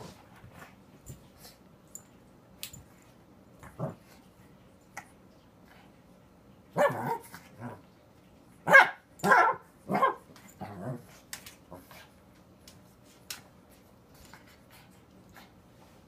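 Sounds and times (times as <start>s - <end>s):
puppy barking: 8.7s - 10.2s.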